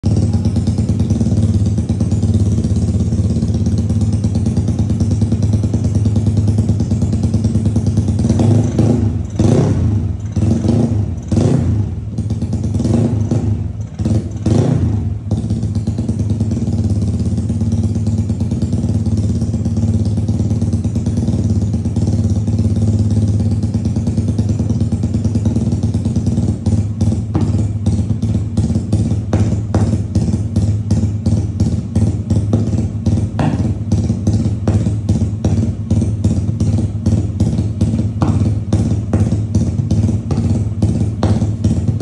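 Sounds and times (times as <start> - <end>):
scooter engine revving and idling: 0.0 - 42.0.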